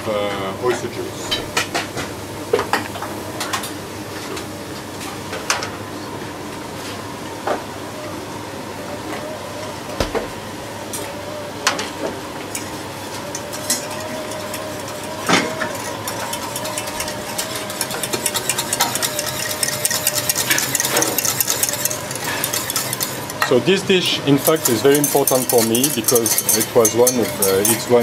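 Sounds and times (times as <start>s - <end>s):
kitchen hum: 0.0s - 28.0s
utensils knocking on pans: 13.3s - 23.6s, 24.4s - 28.0s
whisk ticking in metal saucepan: 13.6s - 23.4s, 24.4s - 28.0s.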